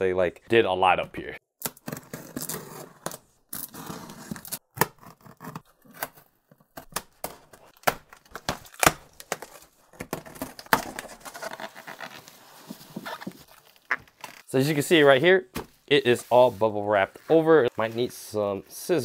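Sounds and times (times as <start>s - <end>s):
box cutter ripping through tape: 1.6s - 6.2s.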